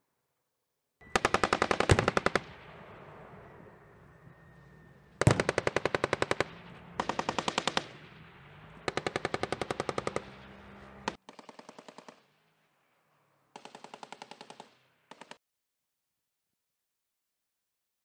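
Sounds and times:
machine-gun fire in bursts: 0:01.0 - 0:12.3, 0:13.6 - 0:15.4
single gunshot: 0:01.8 - 0:11.2.

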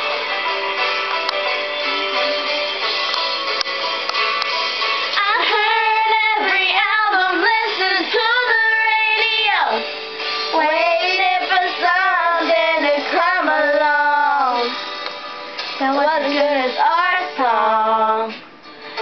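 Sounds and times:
recorded backing song: 0:00.0 - 0:19.0
girls singing karaoke: 0:05.0 - 0:18.7.

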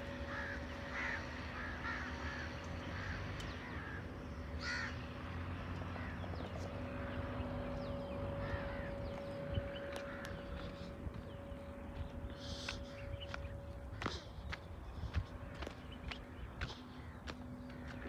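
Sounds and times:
crows cawing: 0:00.0 - 0:05.2, 0:05.8 - 0:07.1, 0:08.3 - 0:09.2, 0:09.8 - 0:11.0, 0:16.6 - 0:18.0
faint steady hum: 0:00.0 - 0:18.0.

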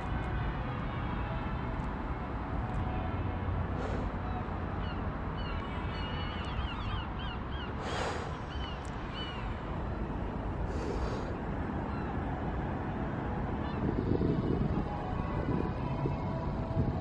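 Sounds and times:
low city rumble: 0:00.0 - 0:17.0
birds chirping: 0:04.2 - 0:09.7.

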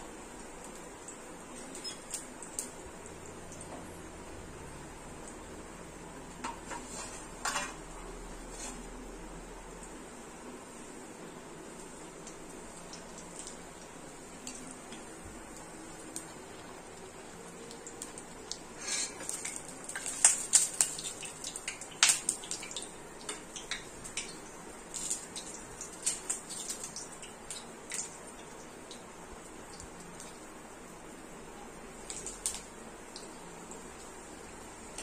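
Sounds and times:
bread frying in hot oil: 0:00.0 - 0:35.0
metal skimmer scraping a pan: 0:06.6 - 0:07.8.

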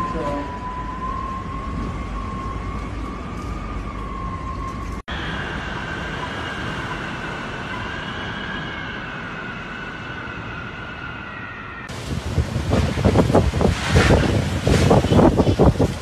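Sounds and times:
storm wind whistling: 0:00.0 - 0:16.0
wind rushing: 0:05.0 - 0:16.0.

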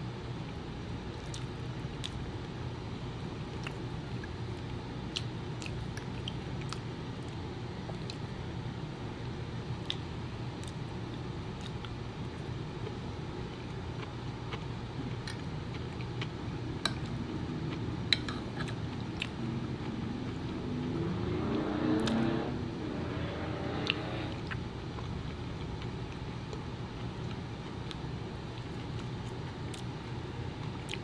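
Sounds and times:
low room hum: 0:00.0 - 0:31.0
quiet chewing: 0:01.2 - 0:02.2, 0:03.5 - 0:08.2, 0:12.8 - 0:20.6, 0:28.6 - 0:30.0
wavering hum: 0:16.4 - 0:24.9.

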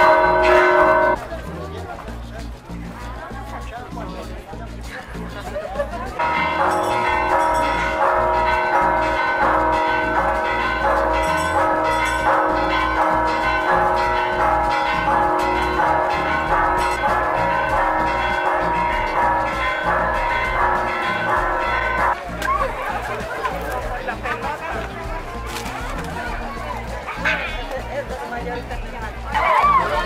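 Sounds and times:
church bells pealing: 0:00.0 - 0:01.3, 0:06.2 - 0:23.5.

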